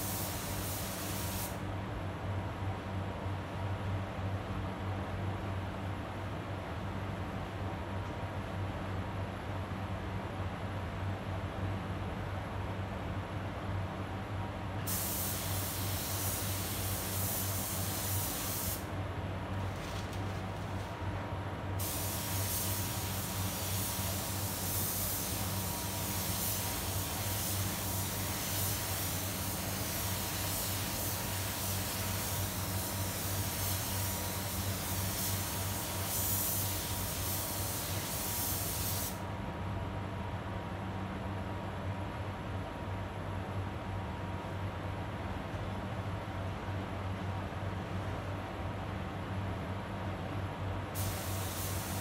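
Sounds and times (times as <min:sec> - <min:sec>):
paint spray gun hissing: 0:00.0 - 0:01.6, 0:14.9 - 0:18.8, 0:21.8 - 0:39.2, 0:51.0 - 0:52.0.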